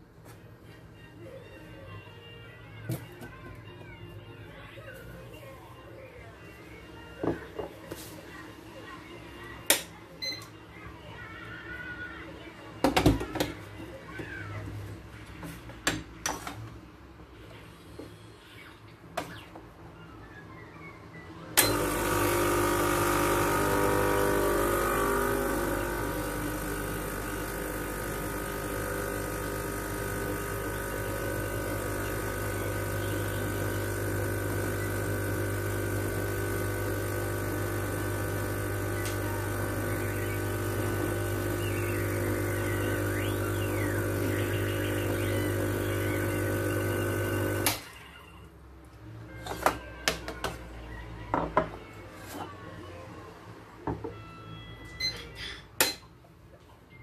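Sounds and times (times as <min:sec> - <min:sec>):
espresso machine pump buzzing: 0:21.6 - 0:47.9.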